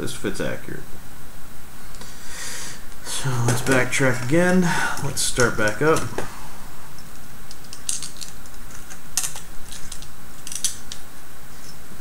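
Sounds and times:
small screws and parts clicking: 0:07.1 - 0:11.0.

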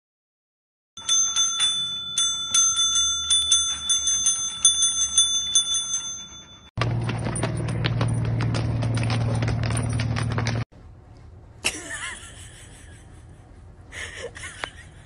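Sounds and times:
service bell dinging: 0:01.0 - 0:08.4.

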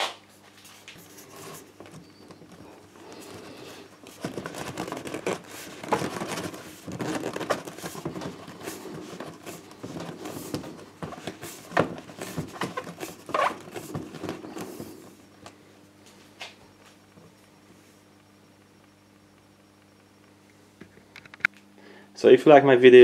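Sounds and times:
plastic pipe scraping in rubber adapter: 0:01.2 - 0:14.9.

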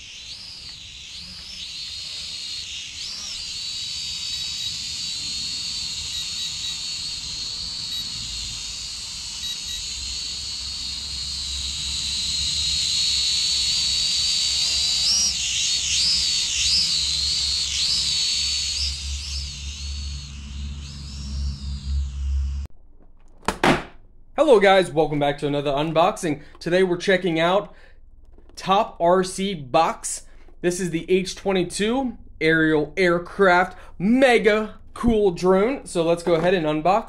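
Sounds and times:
drone propellers whining: 0:00.0 - 0:22.7
low rumble: 0:17.9 - 0:23.1.

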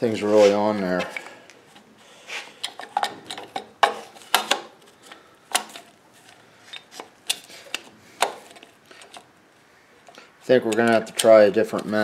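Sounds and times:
plastic housing clicking and knocking: 0:02.6 - 0:05.9, 0:06.8 - 0:09.3, 0:10.6 - 0:12.0.

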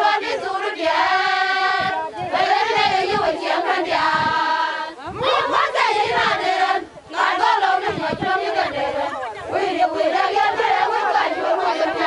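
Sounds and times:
women singing a chant: 0:00.0 - 0:12.0.

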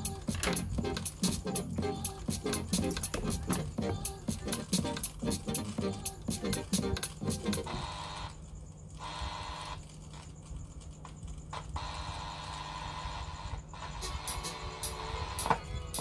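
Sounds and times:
quiet music with held notes: 0:00.0 - 0:07.9, 0:14.0 - 0:16.0.

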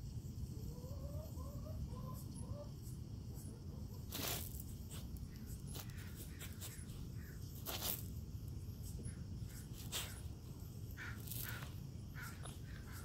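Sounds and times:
sharp scrapes in gravel: 0:04.0 - 0:08.2, 0:11.0 - 0:12.6.

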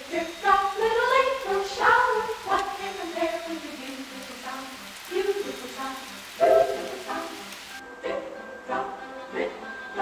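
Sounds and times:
music with singing voice: 0:00.0 - 0:10.0.

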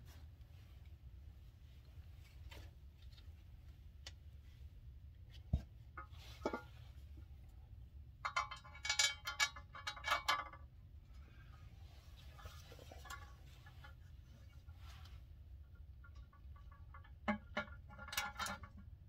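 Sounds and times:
low steady hum: 0:00.0 - 0:19.0
metal parts clinking and rattling: 0:08.2 - 0:10.7, 0:16.5 - 0:18.9.

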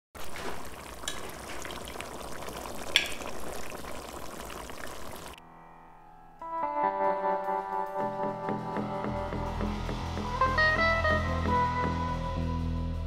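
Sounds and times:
curry bubbling and spitting in pot: 0:00.2 - 0:05.4
music: 0:05.4 - 0:13.0.

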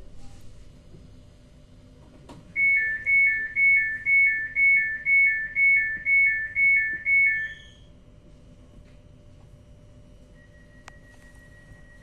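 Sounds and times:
electronic two-tone signal: 0:02.6 - 0:07.9, 0:10.4 - 0:12.0.

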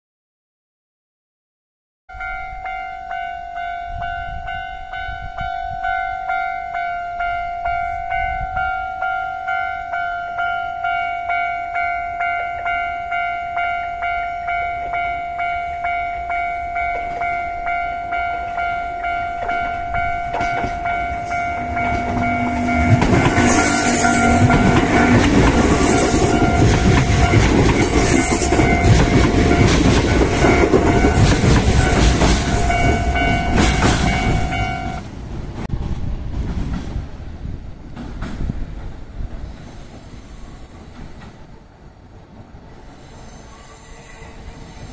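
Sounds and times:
level crossing warning bell: 0:02.1 - 0:35.0
electric train passing: 0:02.1 - 0:44.9
train wheels clattering on rails: 0:18.5 - 0:35.0, 0:35.6 - 0:41.5.

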